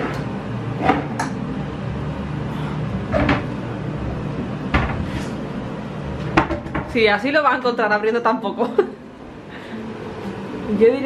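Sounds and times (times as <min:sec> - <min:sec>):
steady low hum: 0:00.0 - 0:11.0
cabinet doors opening and shutting: 0:03.1 - 0:03.5.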